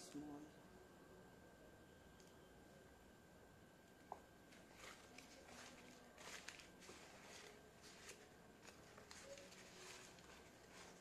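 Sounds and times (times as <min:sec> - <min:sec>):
crumpled paper rustling: 0:04.6 - 0:11.0.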